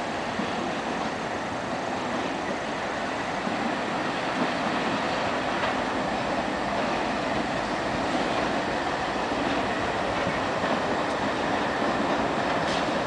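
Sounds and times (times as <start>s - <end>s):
diesel locomotive engines: 0.0s - 13.0s
train wheels on rails: 0.0s - 13.0s.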